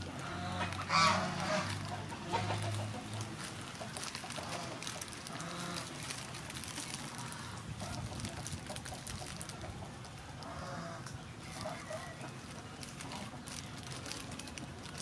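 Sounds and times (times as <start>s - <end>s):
plastic cling film crinkling: 0.0s - 10.6s, 11.5s - 15.0s
chicken clucking: 0.2s - 5.8s.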